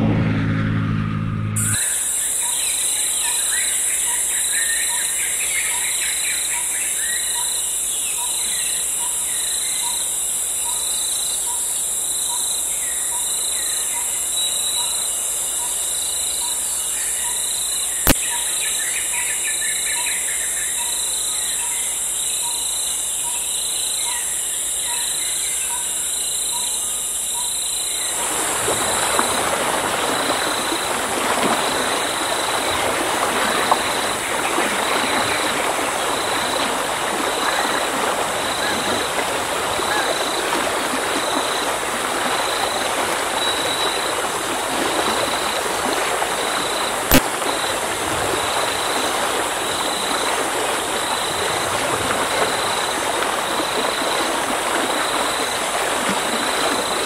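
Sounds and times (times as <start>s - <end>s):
flowing water rushing: 28.1s - 57.0s.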